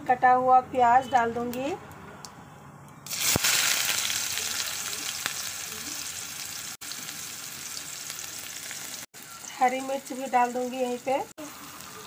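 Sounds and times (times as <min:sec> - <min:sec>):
onion sizzling in hot oil: 0:03.0 - 0:12.0.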